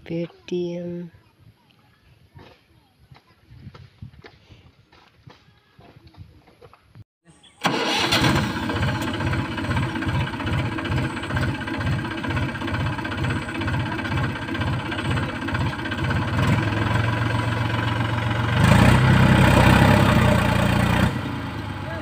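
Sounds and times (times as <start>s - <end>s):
diesel tractor engine: 7.6s - 22.0s.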